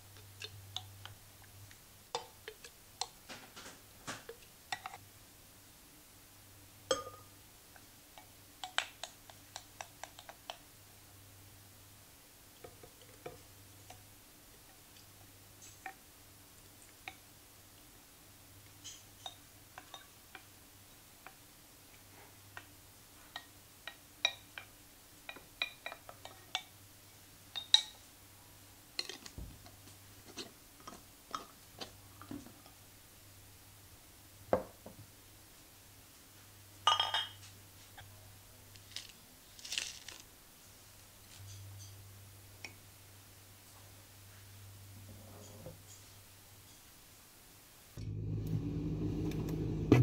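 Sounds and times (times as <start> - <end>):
glass clatters: 6.9 - 7.3, 36.9 - 37.5
wooden spoon knocking glass bowl: 6.9 - 7.3.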